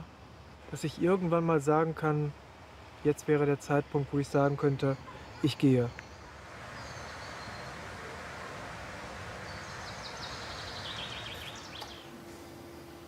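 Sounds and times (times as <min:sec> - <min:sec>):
steady rushing background noise: 0:00.0 - 0:13.0
small birds chirping: 0:03.4 - 0:13.0.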